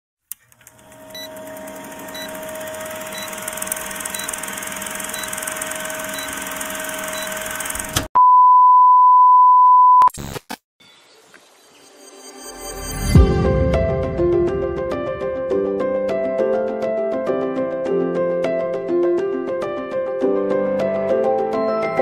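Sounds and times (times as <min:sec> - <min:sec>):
loud test-tone beep: 0:08.2 - 0:10.1.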